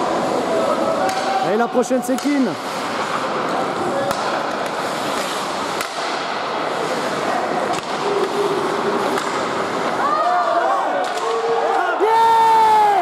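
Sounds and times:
skates scraping ice: 0.0s - 11.8s
echoing rink ambience: 0.0s - 13.0s
stick clacking puck: 1.0s - 1.4s, 2.1s - 6.4s, 7.6s - 8.4s, 9.0s - 10.0s, 11.0s - 11.4s.

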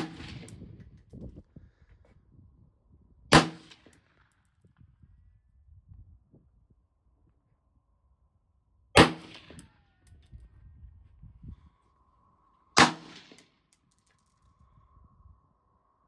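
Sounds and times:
rifle shots: 0.0s - 0.5s, 3.3s - 3.9s, 9.0s - 9.7s, 12.8s - 13.4s.

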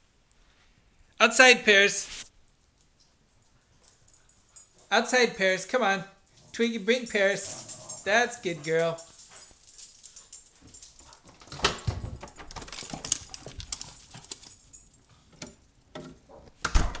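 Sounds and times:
dogs scuffling: 6.3s - 15.0s
clicks and bumps: 11.3s - 14.6s.

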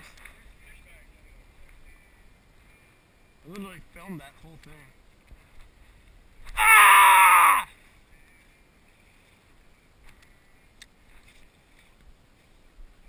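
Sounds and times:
faint clicks: 4.5s - 6.6s, 10.0s - 12.1s
loud wordless yell: 6.6s - 7.7s.

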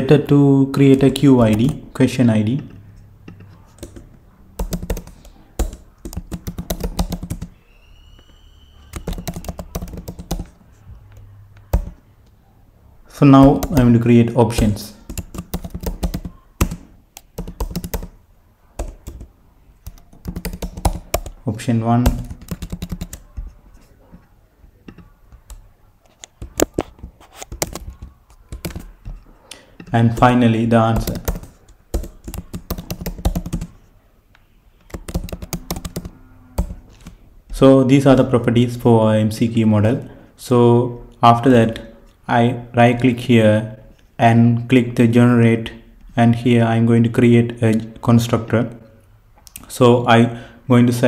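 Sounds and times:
typing on a computer keyboard: 1.4s - 1.8s, 3.3s - 7.5s, 8.9s - 10.6s, 11.6s - 12.0s, 13.4s - 13.9s, 14.5s - 18.2s, 18.8s - 21.4s, 22.0s - 23.6s, 24.9s - 29.2s, 29.8s - 33.8s, 34.8s - 37.2s.

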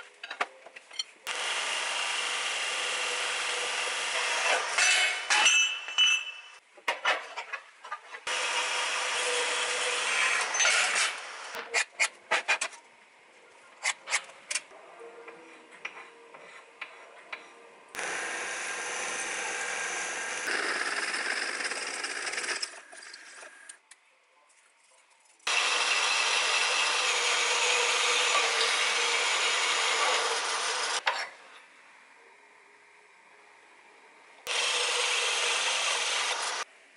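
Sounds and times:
drill cutting into metal: 1.3s - 5.3s, 8.3s - 11.3s, 18.0s - 22.8s, 25.5s - 31.0s, 34.5s - 36.6s
bandsaw cutting metal: 1.3s - 5.7s, 18.0s - 22.8s, 25.5s - 31.0s, 34.5s - 36.6s.

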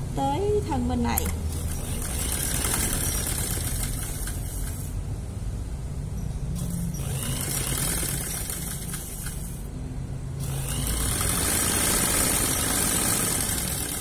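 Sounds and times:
sewing machine running: 1.5s - 5.0s, 6.6s - 9.7s, 10.4s - 14.0s.

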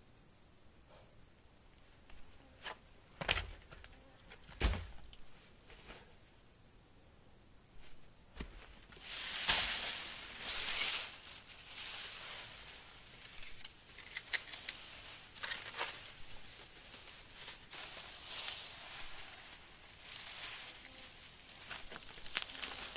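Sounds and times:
dry palm frond rustling: 7.8s - 22.9s.

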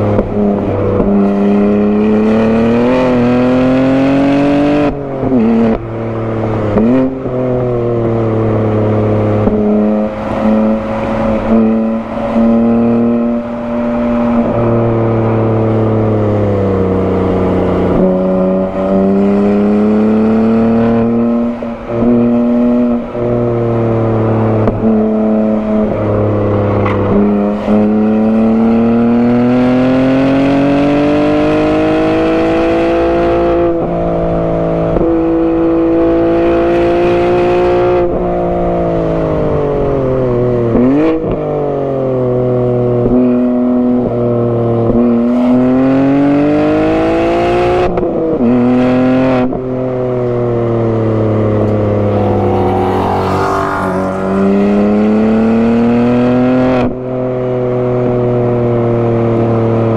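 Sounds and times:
car engine revving hard: 44.0s - 59.8s.

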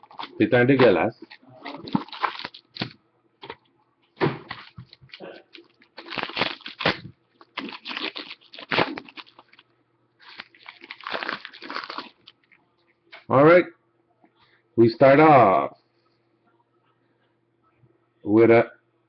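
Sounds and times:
wrapping crinkling and tearing: 0.0s - 3.0s, 4.5s - 12.6s.

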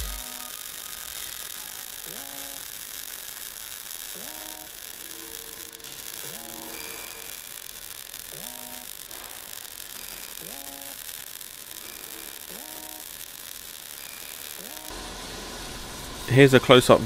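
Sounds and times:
welding arc hissing: 0.0s - 17.0s.

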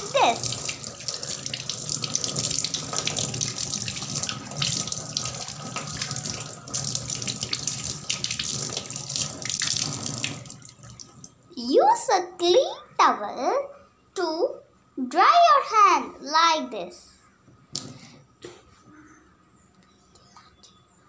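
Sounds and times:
tap water running into a sink: 0.0s - 11.4s.

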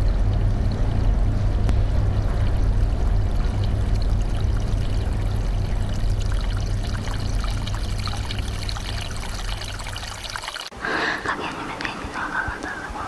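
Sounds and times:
low rumble: 0.0s - 10.0s.

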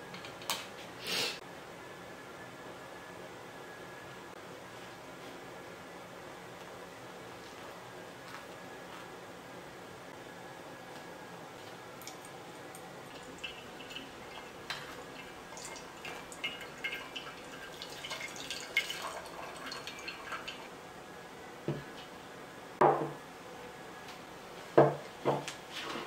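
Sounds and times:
soft knocks: 24.8s - 25.5s.

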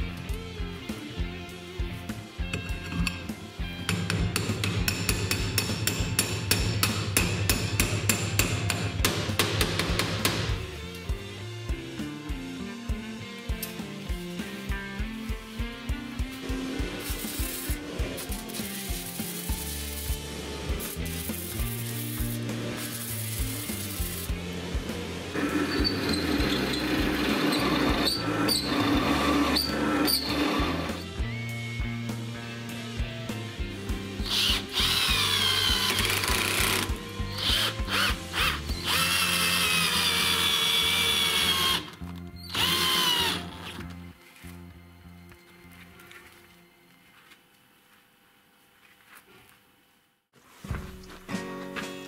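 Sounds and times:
background music: 0.0s - 47.3s, 50.6s - 52.0s
electric arc welding crackling: 16.0s - 28.1s
drill press boring steel: 25.3s - 31.1s, 34.2s - 43.8s.

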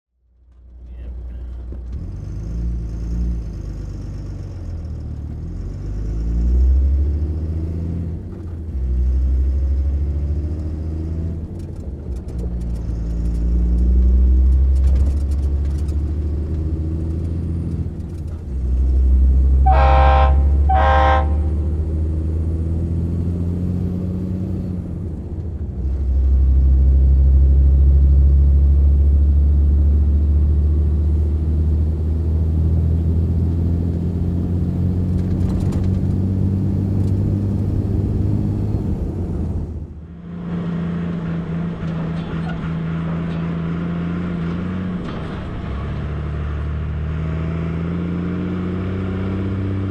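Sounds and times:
truck diesel engine running: 10.9s - 47.0s
horn toots: 19.6s - 21.7s.

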